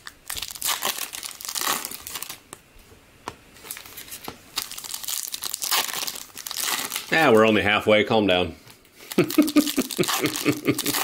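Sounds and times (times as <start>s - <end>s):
foil wrapper tearing and crinkling: 0.0s - 2.4s, 3.7s - 7.4s, 9.0s - 11.0s.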